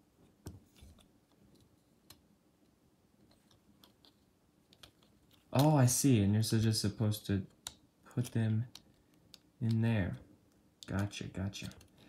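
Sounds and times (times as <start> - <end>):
plastic toy parts clicking: 3.2 - 5.7, 7.5 - 9.8, 10.5 - 12.0.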